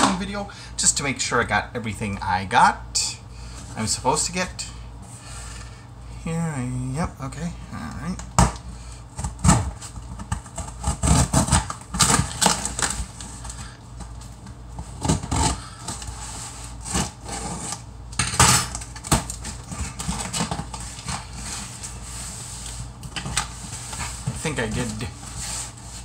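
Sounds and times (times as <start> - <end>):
blade slicing packing tape: 10.5 - 13.0.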